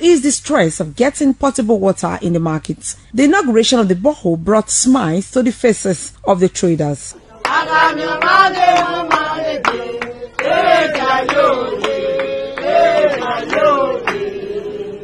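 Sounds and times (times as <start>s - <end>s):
hand claps: 7.4s - 14.3s
women singing together: 7.4s - 15.0s.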